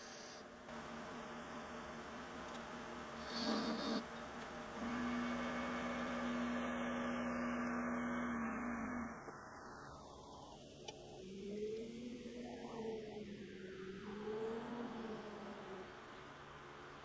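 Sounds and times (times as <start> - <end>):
wood lathe humming: 3.1 - 10.2.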